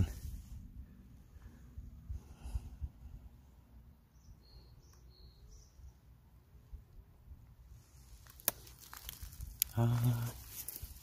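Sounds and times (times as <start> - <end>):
faint low rumble: 0.0 - 11.0
high bird chirps: 4.1 - 6.0.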